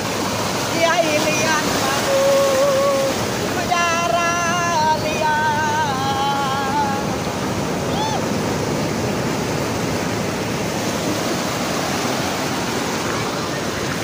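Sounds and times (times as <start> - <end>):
ocean waves breaking: 0.0 - 14.0.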